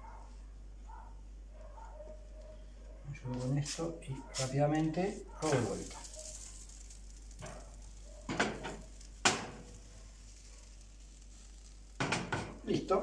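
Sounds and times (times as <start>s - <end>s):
low steady hiss: 2.3s - 13.0s
sharp knock of pan: 8.3s - 9.7s, 12.0s - 12.6s.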